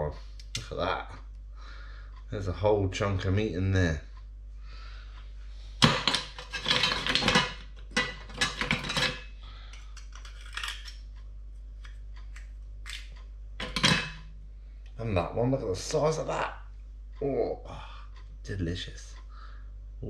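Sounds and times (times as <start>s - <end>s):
shells and knife clattering in pan: 5.8s - 11.0s, 12.9s - 14.2s.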